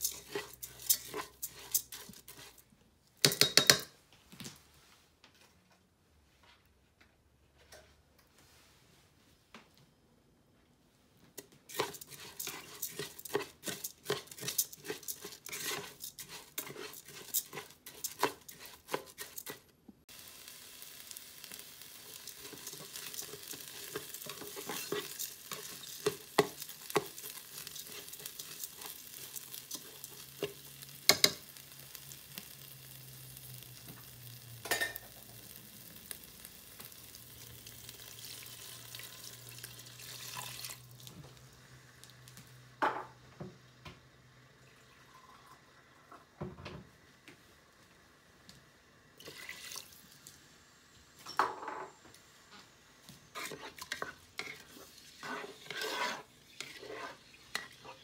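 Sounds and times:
spoon stirring rice in pot: 0:00.0 - 0:03.9, 0:11.4 - 0:19.7, 0:20.5 - 0:35.2, 0:53.2 - 0:58.0.

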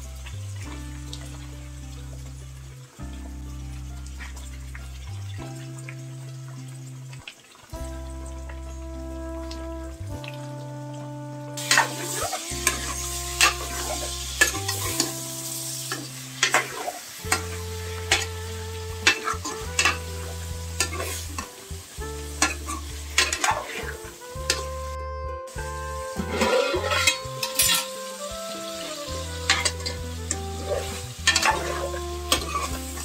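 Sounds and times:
background music: 0:00.0 - 0:33.0
chicken sizzling in pot: 0:10.0 - 0:33.0.

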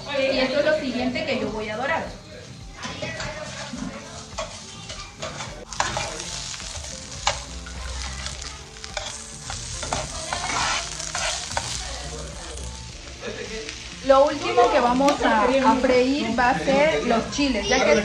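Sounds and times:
onions sizzling in hot oil: 0:00.0 - 0:18.0
metal tongs clacking on pan: 0:04.4 - 0:06.3, 0:07.1 - 0:07.5, 0:08.2 - 0:11.8.

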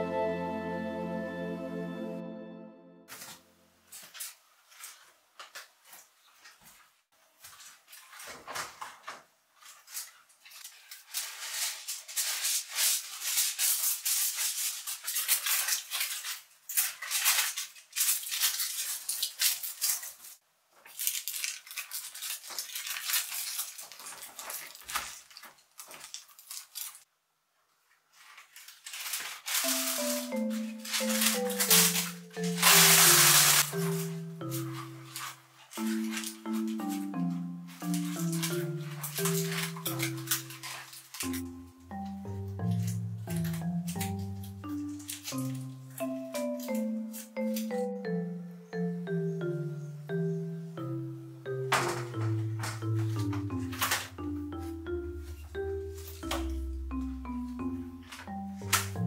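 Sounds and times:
utensils and containers clinking: 0:28.6 - 0:48.1, 0:51.5 - 0:59.0.

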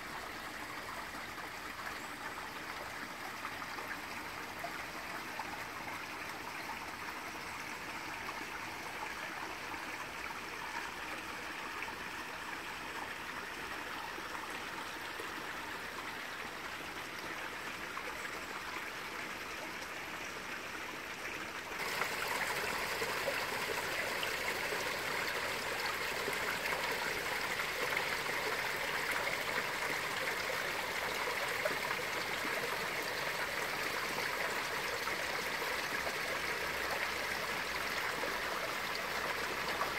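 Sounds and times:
water splashing down small waterfall: 0:21.8 - 0:39.9.

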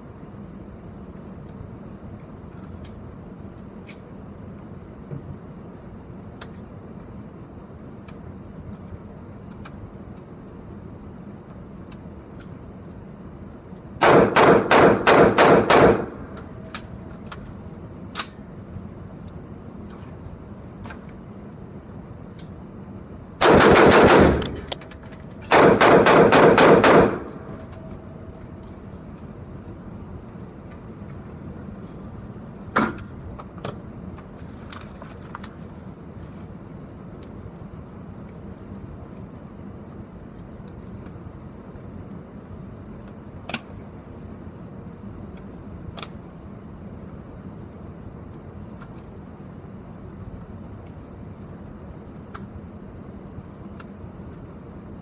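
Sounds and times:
rifle shots indoors: 0:14.0 - 0:16.6, 0:23.4 - 0:28.5.

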